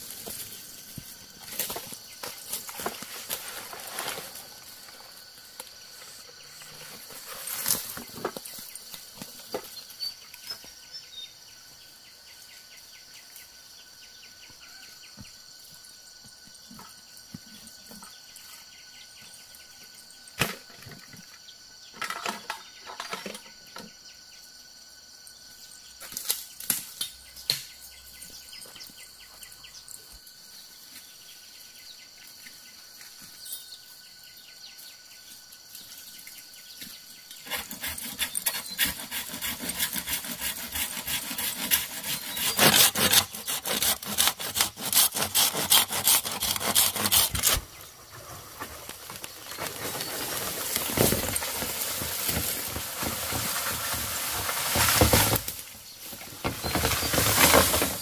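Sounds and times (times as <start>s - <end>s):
brushing past undergrowth: 0.0s - 9.8s, 45.0s - 58.0s
high drone of insects: 0.0s - 58.0s.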